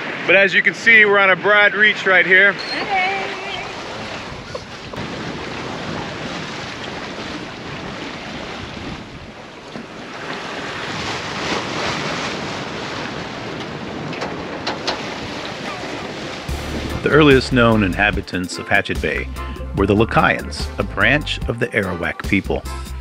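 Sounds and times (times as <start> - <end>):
water rushing along a hull: 0.0 - 22.3
wind buffeting microphone: 2.5 - 17.2.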